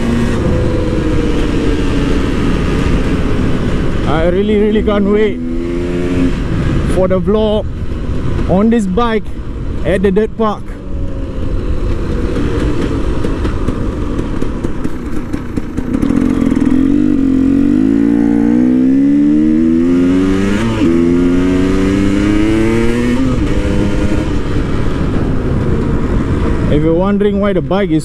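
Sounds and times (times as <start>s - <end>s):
dirt bike engine revving: 0.0s - 7.0s, 11.2s - 25.1s.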